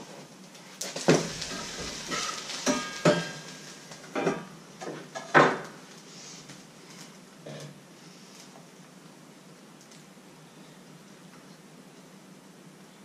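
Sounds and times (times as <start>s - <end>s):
batter sizzling: 0.0s - 7.3s
pan lid and frying pan clattering: 1.0s - 5.7s.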